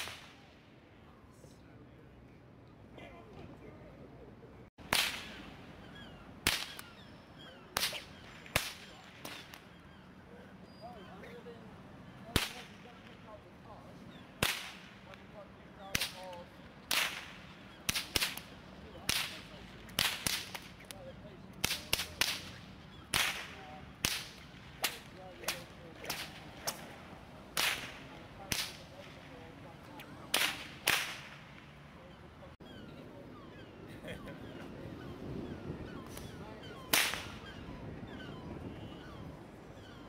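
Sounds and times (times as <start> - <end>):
bullwhip cracking: 0.0 - 0.5, 4.8 - 5.5, 6.4 - 7.0, 7.7 - 9.7, 12.3 - 12.9, 14.4 - 15.2, 15.8 - 21.0, 21.6 - 29.3, 30.1 - 31.7, 36.9 - 37.4.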